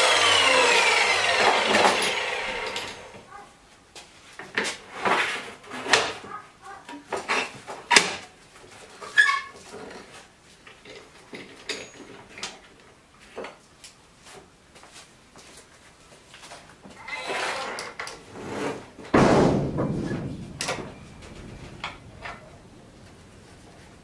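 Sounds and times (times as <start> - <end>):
hard parts clicking and clattering: 0.0 - 3.2, 19.0 - 24.0.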